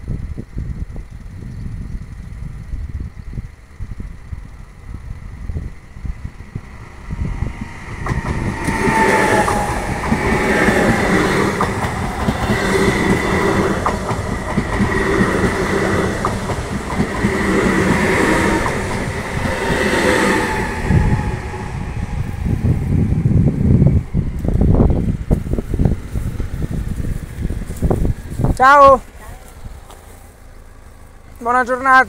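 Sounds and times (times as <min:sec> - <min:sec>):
train wheels rushing on rail: 0:04.0 - 0:32.0.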